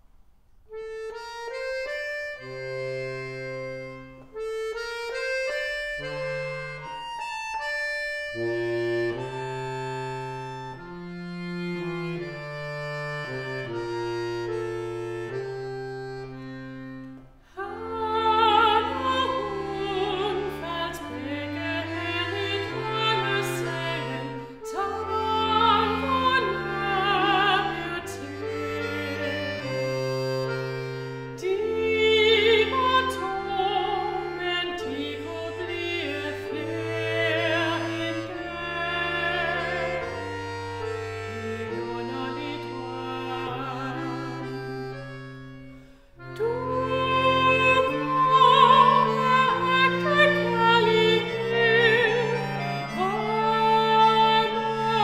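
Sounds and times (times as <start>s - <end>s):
accordion playing chords: 0.6s - 55.0s
woman singing with vibrato: 17.6s - 29.2s, 31.4s - 40.2s, 41.6s - 44.5s, 46.4s - 55.0s.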